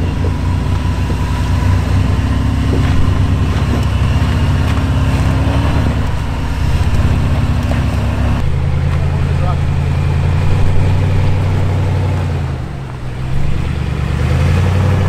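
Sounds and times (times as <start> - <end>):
engine running at low revs: 0.0 - 15.0.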